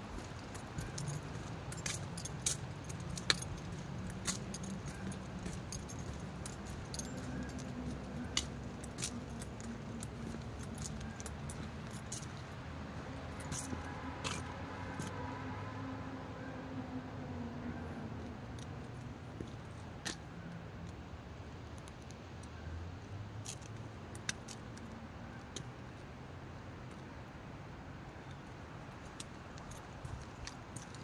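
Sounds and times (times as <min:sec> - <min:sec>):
light clicks and clinks: 0:00.2 - 0:15.2, 0:23.4 - 0:25.8, 0:28.2 - 0:31.0.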